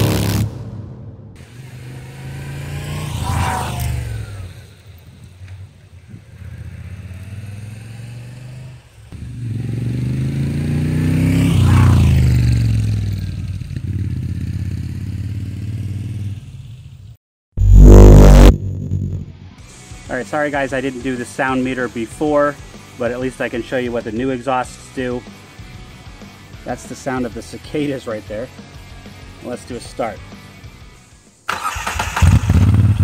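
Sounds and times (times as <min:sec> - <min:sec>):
motorcycle riding past: 0:01.4 - 0:17.0.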